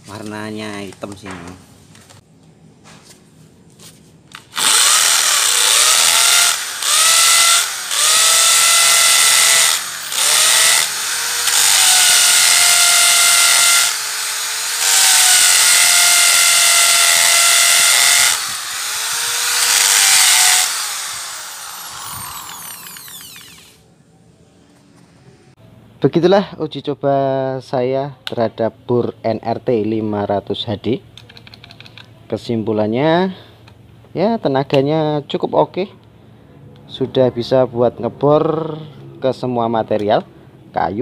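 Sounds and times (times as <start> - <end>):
impact drill boring into concrete: 4.5 - 23.8.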